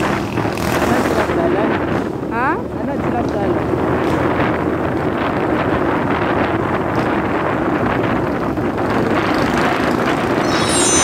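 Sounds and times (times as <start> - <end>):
wind buffeting microphone: 0.0 - 10.4.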